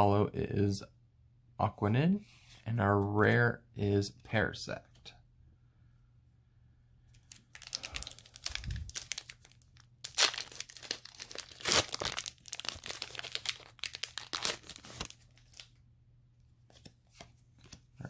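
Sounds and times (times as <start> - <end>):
foil wrapper crinkling and tearing: 7.2 - 15.7.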